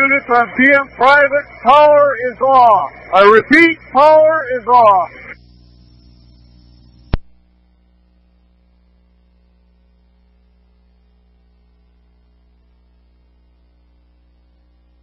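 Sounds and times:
burst of radio static: 0.0 - 7.8
low electrical hum with hiss: 0.0 - 15.0.

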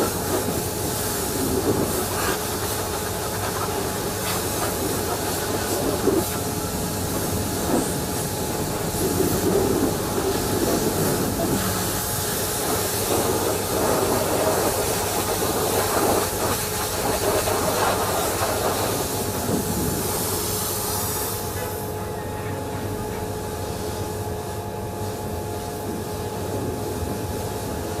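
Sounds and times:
pressure washer jet hissing: 0.0 - 21.8
pressure washer machine humming: 0.0 - 28.0.

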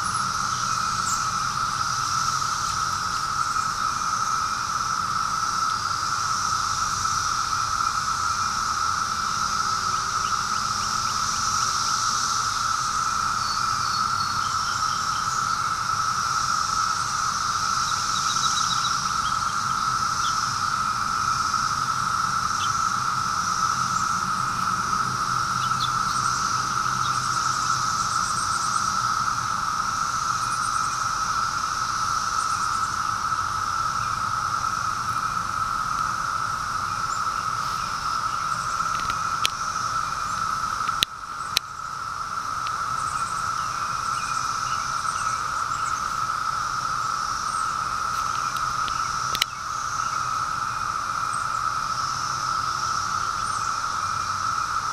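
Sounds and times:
cicadas droning: 0.0 - 54.9.

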